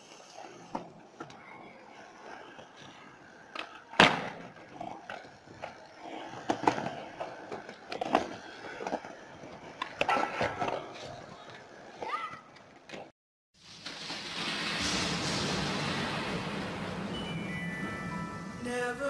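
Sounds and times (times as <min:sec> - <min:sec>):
skateboard wheels rolling on concrete: 0:00.0 - 0:19.0
skateboard clacks: 0:00.1 - 0:13.1.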